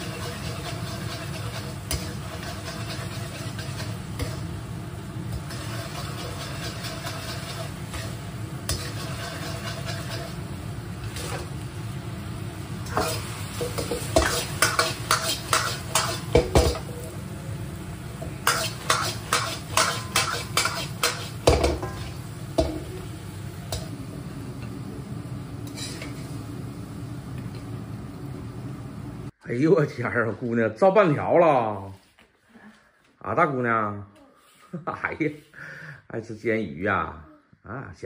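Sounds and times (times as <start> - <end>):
sauce sizzling: 0.0 - 29.4.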